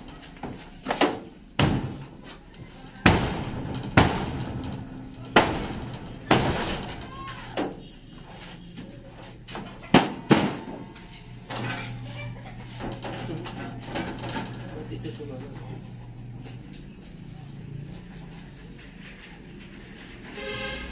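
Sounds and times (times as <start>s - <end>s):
hammer banging on sheet metal: 3.0s - 7.0s, 9.9s - 10.8s.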